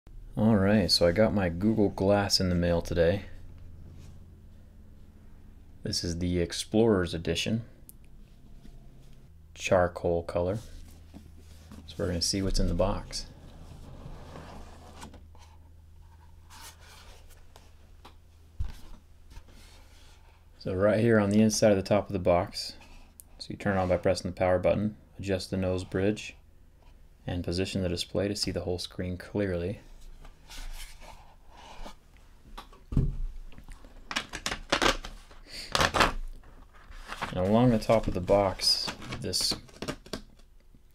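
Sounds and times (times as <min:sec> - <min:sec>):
sharp scraping rustles: 0:13.0 - 0:17.6
cardboard lid rubbing: 0:13.3 - 0:15.6
paperboard box rustling: 0:34.5 - 0:40.2.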